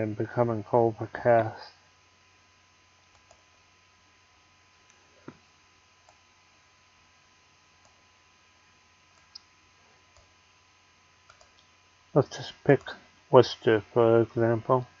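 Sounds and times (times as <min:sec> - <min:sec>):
low electrical hum: 0:00.0 - 0:15.0
computer mouse clicks: 0:03.1 - 0:03.4, 0:09.1 - 0:09.5, 0:10.1 - 0:10.3, 0:11.2 - 0:11.7.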